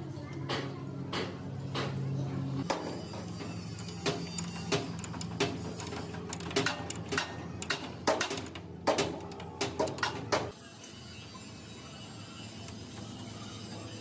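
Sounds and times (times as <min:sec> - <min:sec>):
spanners clinking on metal: 0:02.6 - 0:10.3.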